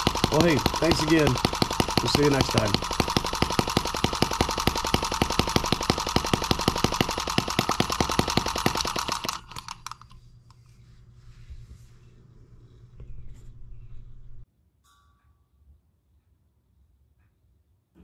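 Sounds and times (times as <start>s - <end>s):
model engine firing pops: 0.0s - 10.0s
engine coasting clicks: 0.0s - 10.2s.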